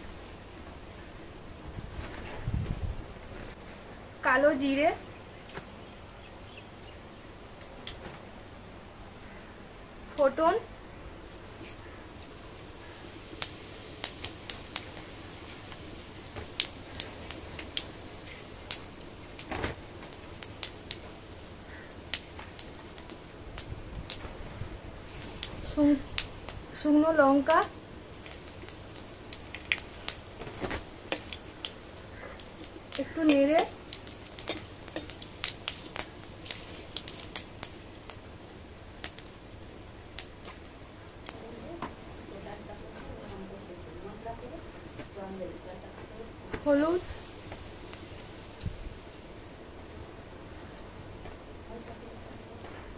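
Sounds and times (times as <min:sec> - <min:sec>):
seeds sputtering in hot oil: 0:11.4 - 0:43.3, 0:46.6 - 0:49.7.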